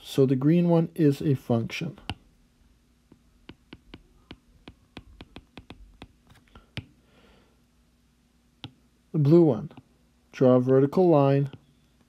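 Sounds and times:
stylus tapping on glass screen: 0:03.1 - 0:07.0, 0:08.6 - 0:08.8.

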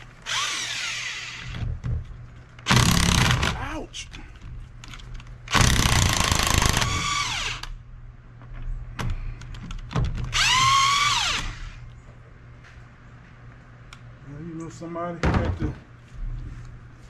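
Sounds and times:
motor whine winding down: 0:00.2 - 0:01.6.

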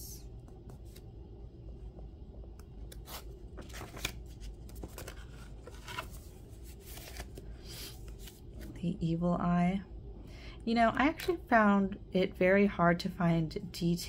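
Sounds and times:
paper pages rustling: 0:00.7 - 0:01.1, 0:02.9 - 0:08.7.

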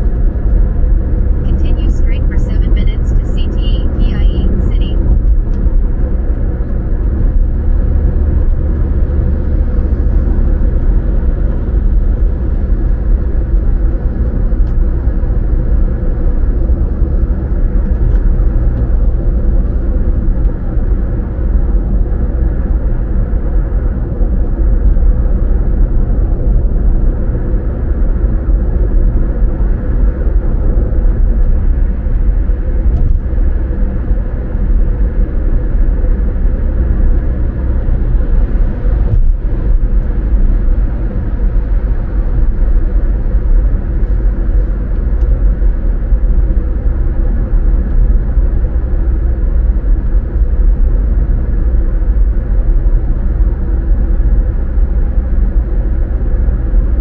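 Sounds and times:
car engine and road noise rumble: 0:00.0 - 0:57.0.

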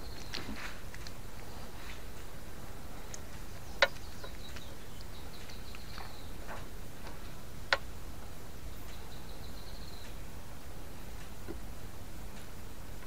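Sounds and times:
sharp clicks: 0:03.0 - 0:07.9.

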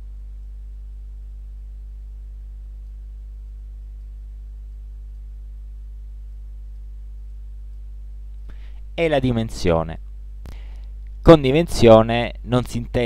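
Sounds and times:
low electrical hum: 0:00.0 - 0:13.0.

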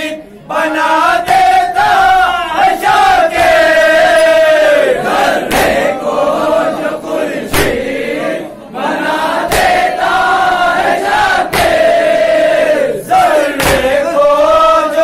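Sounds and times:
men chanting together: 0:00.0 - 0:15.0
sharp beat: 0:09.5 - 0:09.9, 0:11.3 - 0:12.2, 0:13.6 - 0:14.0.

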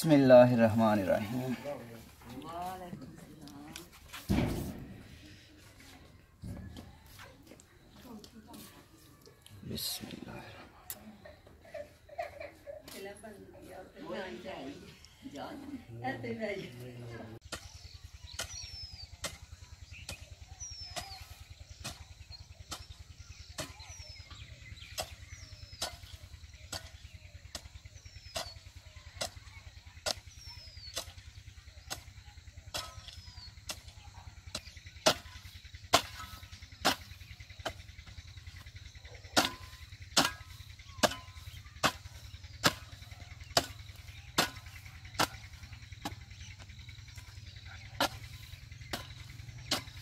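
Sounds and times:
hoe chopping into hard soil: 0:39.4 - 0:46.2.

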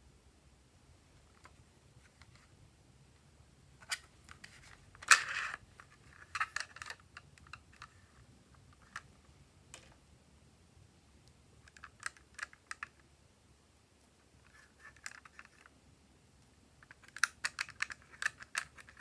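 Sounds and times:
plastic toy palette clicking and rattling: 0:03.8 - 0:08.0, 0:11.6 - 0:13.0, 0:14.4 - 0:15.7, 0:16.8 - 0:19.0.

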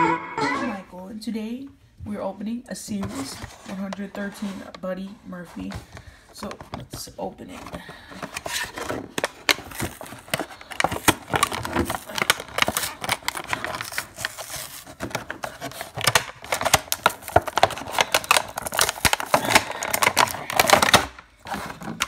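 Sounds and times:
plastic packaging crinkling: 0:05.9 - 0:22.0.

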